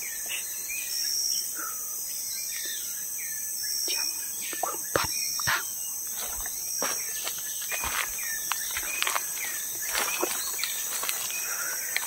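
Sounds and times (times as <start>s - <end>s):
bird chirping: 0.0s - 12.0s
insects buzzing: 0.0s - 12.0s
footsteps crunching on trail: 5.4s - 12.0s.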